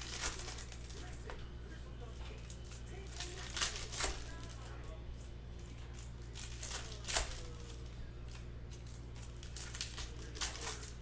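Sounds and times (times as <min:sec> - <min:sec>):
foil wrapper crinkling and tearing: 0:00.0 - 0:01.3, 0:02.2 - 0:11.0.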